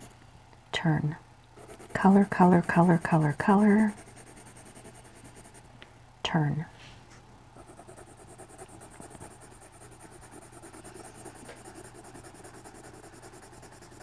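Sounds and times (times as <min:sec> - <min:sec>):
pencil scratching on paper: 0:01.6 - 0:05.6, 0:07.6 - 0:14.0.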